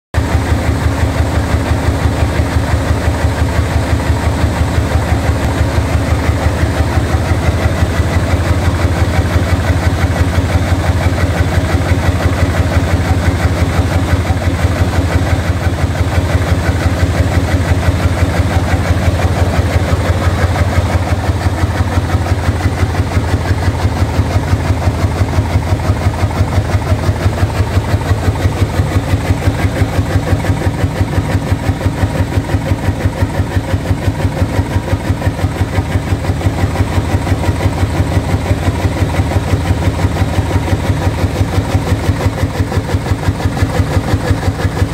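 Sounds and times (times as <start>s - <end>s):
organ wind throbbing pulse: 3.0s - 32.1s.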